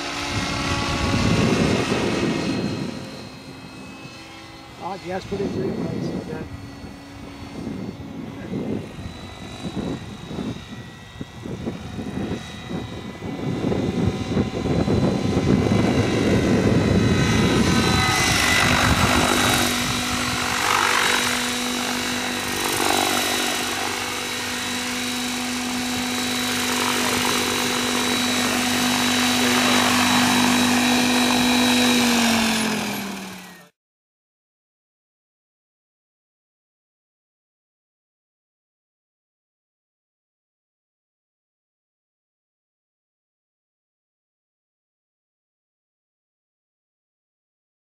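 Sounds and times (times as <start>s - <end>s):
helicopter rotor blades fluttering: 0.0s - 33.7s
helicopter motor whine: 0.0s - 33.8s.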